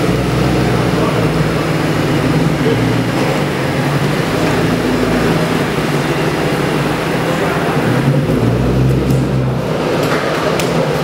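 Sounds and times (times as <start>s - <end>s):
car engine running at low revs: 0.0s - 11.0s.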